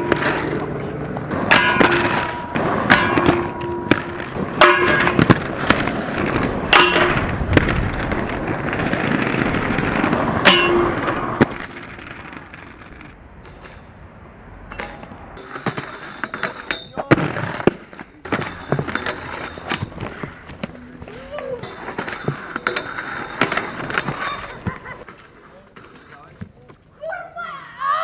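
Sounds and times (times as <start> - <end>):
skateboard clacks and metallic rings: 0.0 - 7.4, 10.4 - 14.0, 14.7 - 25.1
skateboard rolling: 0.0 - 26.7.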